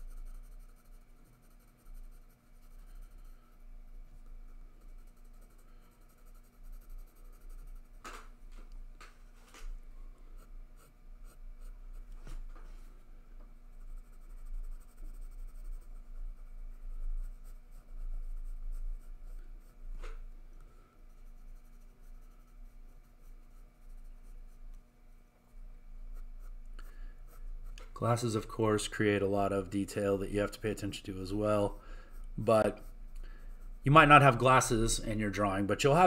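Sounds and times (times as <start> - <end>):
pencil scratching on paper: 0.0 - 3.6, 4.8 - 8.0, 10.4 - 12.2, 13.7 - 20.0, 21.0 - 24.7, 26.1 - 35.6
low steady hum: 0.0 - 36.0.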